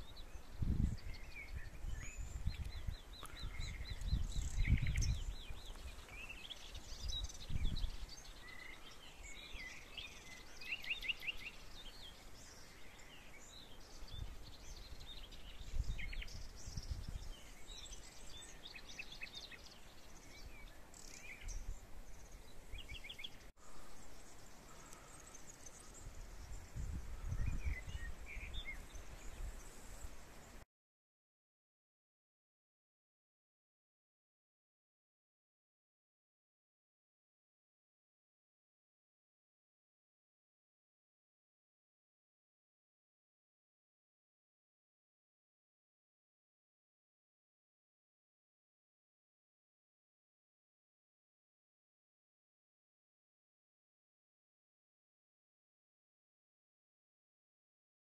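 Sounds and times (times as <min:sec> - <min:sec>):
birds chirping and singing: 0:00.0 - 0:30.1
wind rumbling on microphone: 0:00.0 - 0:30.6.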